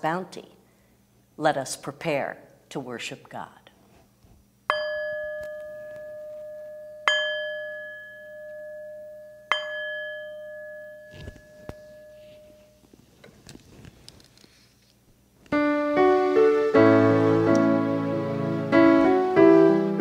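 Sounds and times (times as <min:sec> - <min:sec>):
metal singing bowl struck: 0:04.7 - 0:12.6.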